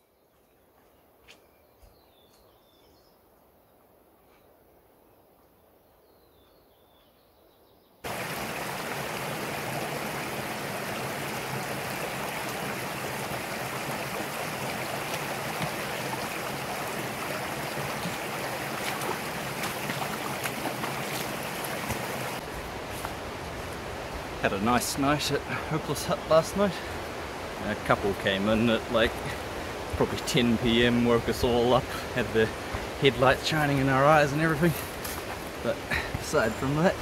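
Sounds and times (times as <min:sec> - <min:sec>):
stream rushing over stones: 0:08.0 - 0:37.0.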